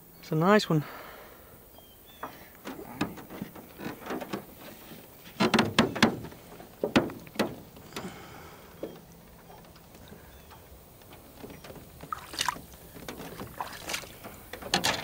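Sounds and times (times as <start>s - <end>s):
fish knocking and slapping in boat: 2.2s - 15.0s.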